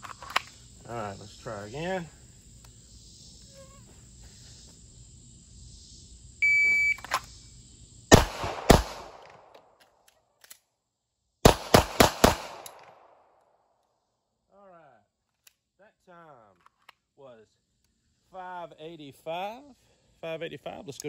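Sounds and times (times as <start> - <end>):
shot timer beep: 6.4 - 7.0
pistol slide reload: 7.0 - 7.3
pistol shots: 8.1 - 9.5, 11.4 - 13.2.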